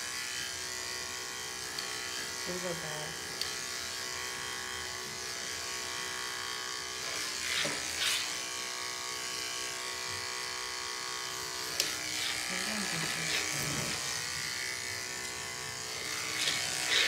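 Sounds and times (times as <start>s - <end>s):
electric clippers buzzing: 0.0s - 17.0s.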